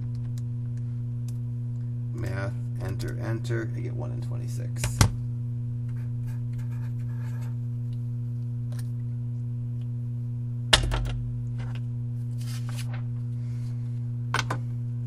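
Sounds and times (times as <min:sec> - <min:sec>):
electrical hum: 0:00.0 - 0:15.0
paper rustling and sliding: 0:12.3 - 0:13.1.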